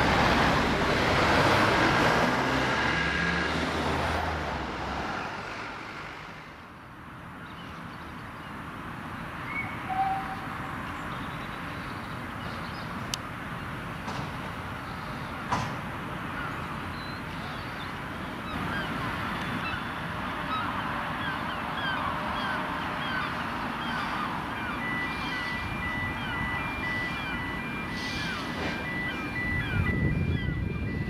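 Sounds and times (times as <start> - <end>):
steady outdoor rumble: 0.0 - 31.0
birds calling: 14.6 - 31.0
level crossing alarm: 23.0 - 31.0.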